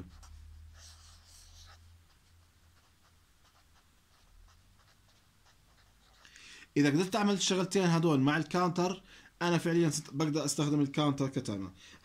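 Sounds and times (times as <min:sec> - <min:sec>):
marker pen scratching on paper: 0:00.0 - 0:07.5
faint low hum: 0:00.0 - 0:08.4.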